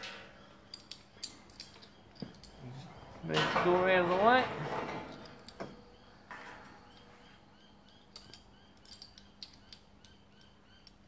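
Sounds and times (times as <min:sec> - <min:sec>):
faint metal clicks: 0:07.8 - 0:11.0.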